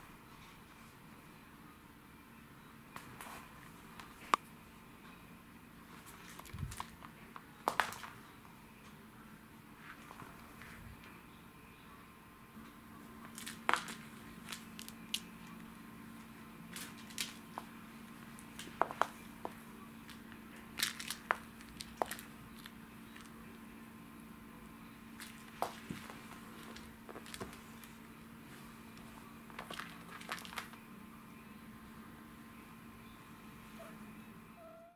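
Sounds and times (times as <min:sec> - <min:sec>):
faint steady hum: 0:00.0 - 0:34.9.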